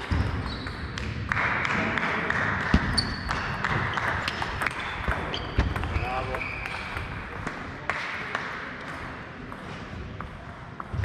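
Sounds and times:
table tennis balls clicking: 2.6s - 10.9s.

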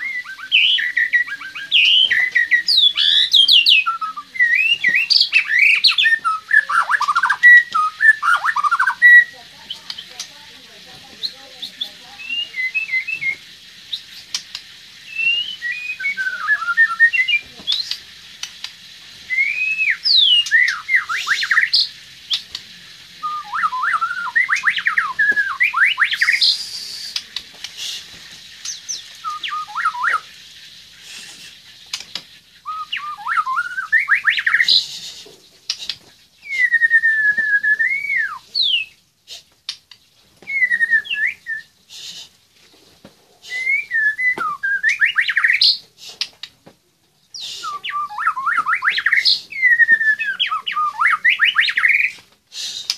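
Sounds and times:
bird singing whistled phrases: 0.0s - 10.2s, 11.2s - 14.3s, 15.0s - 18.0s, 19.3s - 22.4s, 23.2s - 27.4s, 28.6s - 30.3s, 32.6s - 35.1s, 36.4s - 39.0s, 40.4s - 41.8s, 43.5s - 45.8s, 47.4s - 52.2s
sharp clicks: 17.7s - 18.8s.

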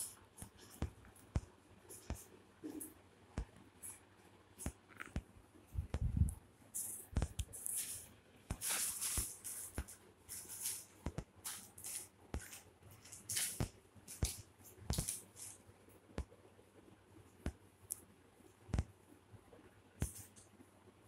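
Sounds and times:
plastic sheet crinkling: 6.8s - 15.6s.

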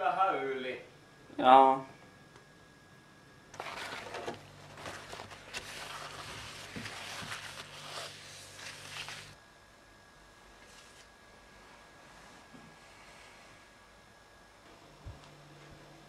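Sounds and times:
steady low hum: 0.0s - 16.0s
tissue paper rustling and scraping: 3.6s - 9.4s, 10.6s - 11.1s.

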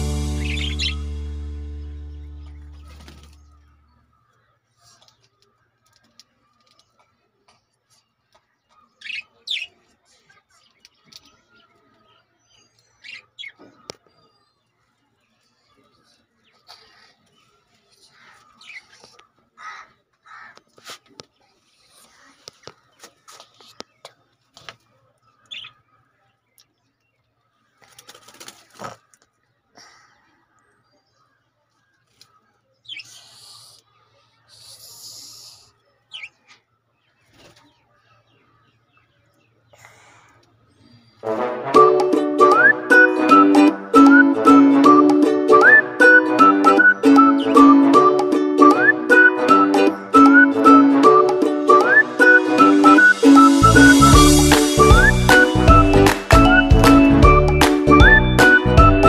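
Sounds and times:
budgerigars chirping: 0.0s - 1.2s
budgies chirping: 0.0s - 6.1s, 12.5s - 14.6s, 16.5s - 20.5s, 25.2s - 26.1s, 32.1s - 41.2s, 42.4s - 59.0s
harsh raspy bird chatter: 0.4s - 1.0s, 8.6s - 11.4s, 16.4s - 24.0s, 32.1s - 41.0s
wings fluttering: 2.7s - 3.7s, 27.8s - 29.2s.

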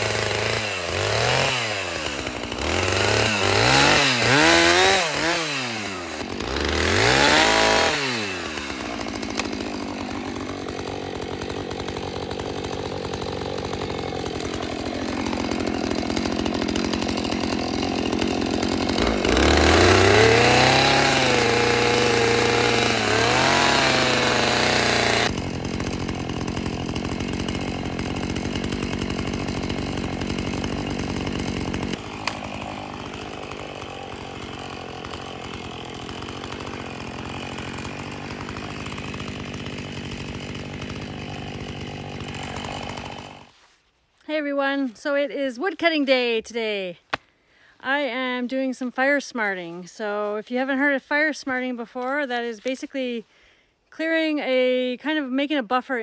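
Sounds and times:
chainsaw revving and idling: 0.0s - 43.8s, 47.8s - 56.0s.

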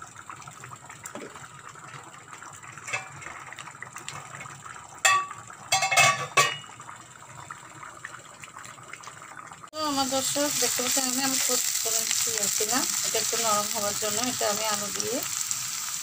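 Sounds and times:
steel pots and lids clanking: 2.8s - 3.3s, 5.0s - 6.7s.

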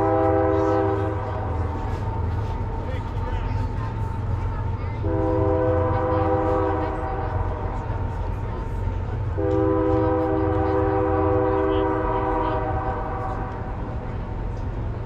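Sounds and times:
train horn blasts: 0.0s - 2.1s, 5.0s - 7.8s, 9.2s - 13.9s.

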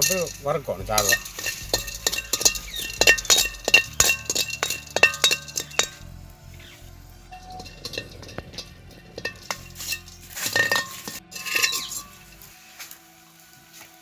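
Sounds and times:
metal spoon clinking in a wok: 1.0s - 6.1s, 7.4s - 12.3s.

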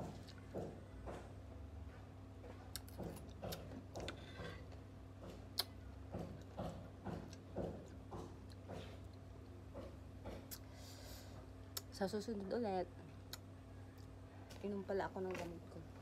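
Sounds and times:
soft chewing: 0.0s - 10.7s
steady low hum: 0.0s - 16.0s.

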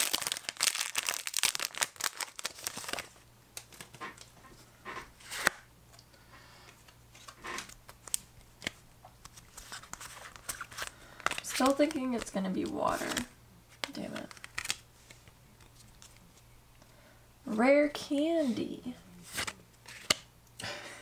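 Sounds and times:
foil wrapper crinkling: 0.0s - 4.2s
cards rustling and clicking: 0.0s - 5.6s, 6.6s - 16.4s, 19.2s - 20.3s.

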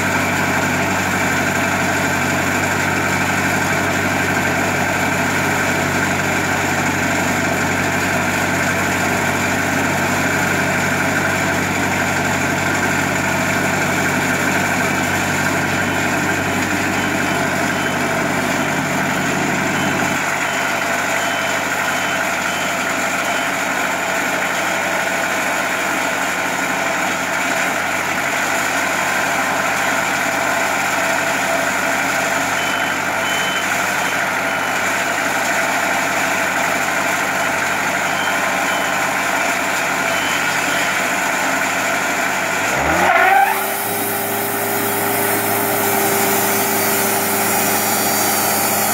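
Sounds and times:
sawmill diesel engine running: 0.0s - 48.9s
rising whine: 43.0s - 48.9s.

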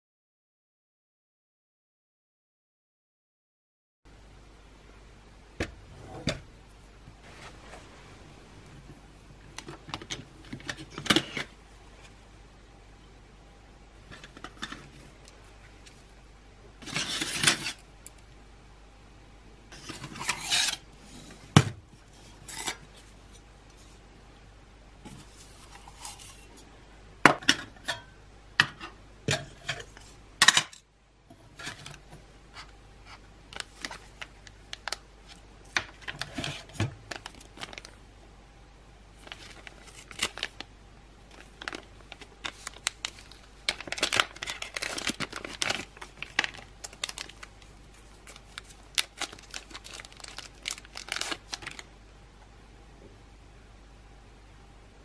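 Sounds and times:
plastic bag crinkling: 33.6s - 38.0s, 39.2s - 40.7s, 41.3s - 51.9s.

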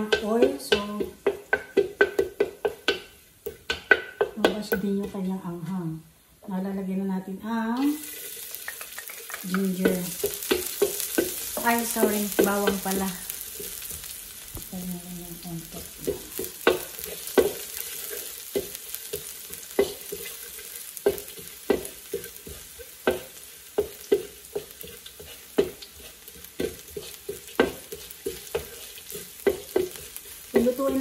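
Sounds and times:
garlic sizzling in oil: 0.0s - 31.0s
utensil scraping against wok: 7.8s - 31.0s.

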